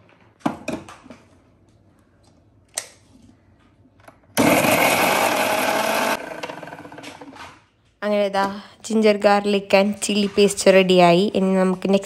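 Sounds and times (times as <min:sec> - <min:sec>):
mixer grinder running: 0:04.4 - 0:07.4.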